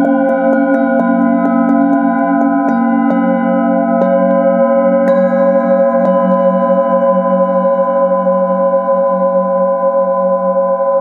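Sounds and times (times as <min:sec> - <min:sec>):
singing bowl ringing: 0:00.0 - 0:11.0.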